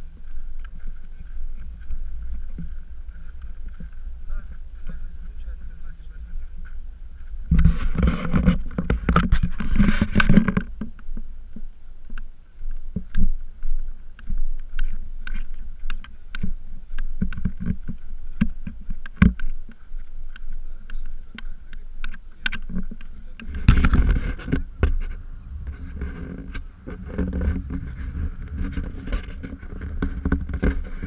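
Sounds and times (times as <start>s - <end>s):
camera knocking and rubbing: 0.2s - 5.5s, 6.6s - 31.0s
rush of noise: 23.2s - 31.0s.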